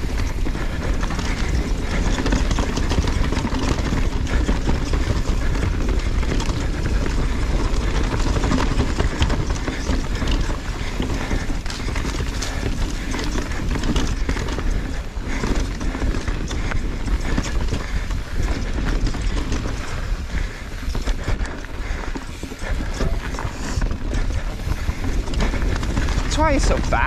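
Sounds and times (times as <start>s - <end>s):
bike rattling over bumps: 0.0s - 27.0s
bike tyre noise on dirt: 0.0s - 27.0s.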